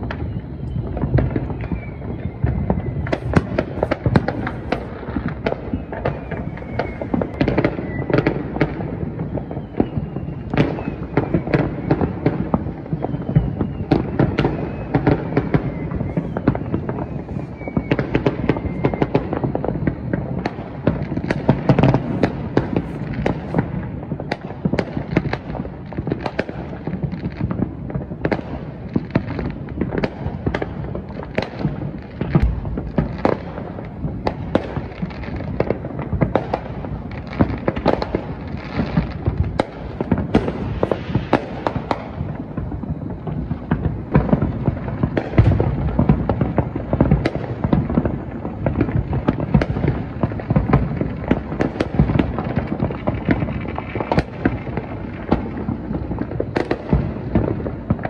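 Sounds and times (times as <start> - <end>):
fireworks popping and banging: 0.0 - 58.0.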